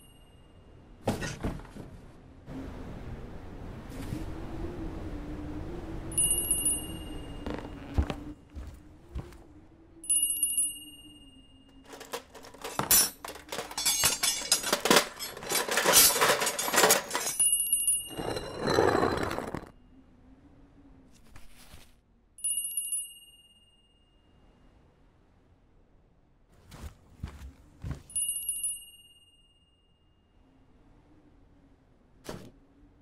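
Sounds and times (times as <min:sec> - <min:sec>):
small high chime: 0:00.0 - 0:00.7, 0:06.1 - 0:07.9, 0:10.0 - 0:12.0, 0:22.4 - 0:24.5, 0:28.1 - 0:30.4
clinking and jingling: 0:10.2 - 0:19.7.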